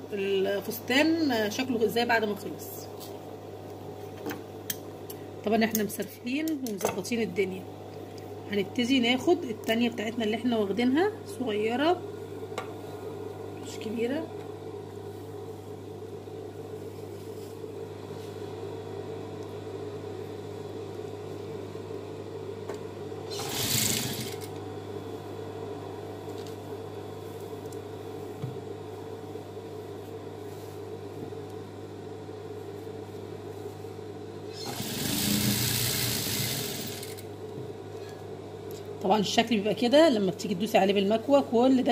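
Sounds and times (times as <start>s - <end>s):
sewing machine motor humming: 23.3s - 24.5s, 34.5s - 37.3s
sewing machine stitching: 23.3s - 24.5s, 34.5s - 37.2s.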